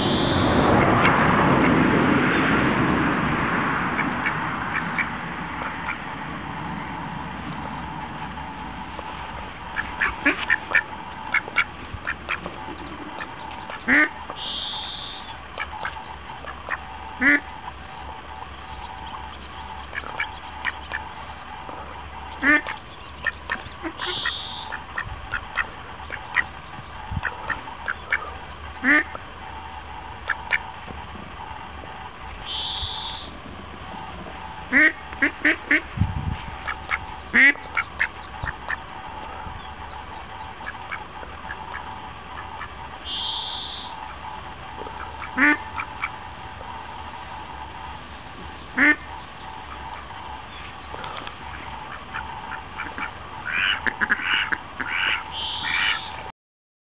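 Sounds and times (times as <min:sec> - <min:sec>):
steady background hum: 0:00.0 - 0:56.3
duck quacking: 0:04.0 - 0:06.0, 0:09.6 - 0:17.8, 0:19.0 - 0:26.5, 0:27.1 - 0:29.2, 0:30.2 - 0:30.7, 0:32.4 - 0:33.3, 0:34.7 - 0:35.9, 0:36.6 - 0:39.4, 0:40.4 - 0:46.2, 0:48.7 - 0:56.3.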